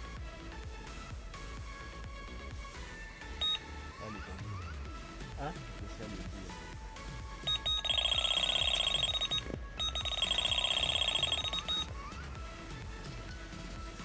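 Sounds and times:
bite alarm beeping: 0:03.4 - 0:03.7, 0:07.4 - 0:11.9.

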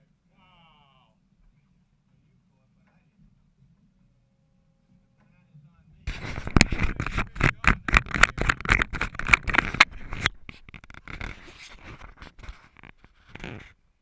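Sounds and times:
fingers scraping camera housing: 0:06.1 - 0:13.8.

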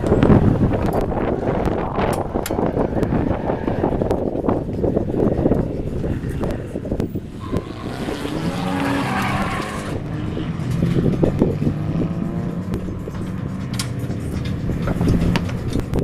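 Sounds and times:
car engines revving: 0:00.0 - 0:16.0
tyres squealing: 0:05.9 - 0:10.9.

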